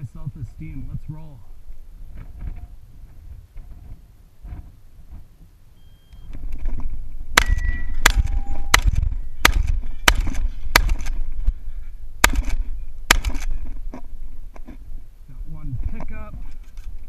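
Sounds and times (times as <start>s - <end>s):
steel target ringing: 7.4s - 9.5s
shotgun shots: 7.4s - 11.2s, 12.2s - 13.5s.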